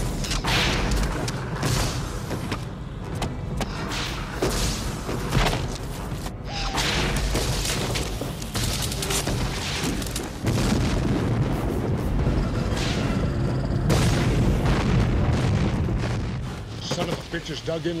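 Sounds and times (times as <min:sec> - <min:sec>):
deep rumble: 0:07.9 - 0:16.8
booms: 0:09.3 - 0:17.2.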